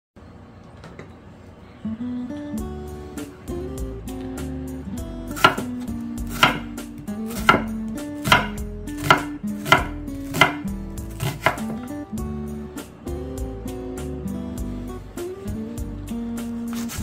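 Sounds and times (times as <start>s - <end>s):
knife slicing onion on wood: 5.3s - 11.9s, 16.4s - 17.0s.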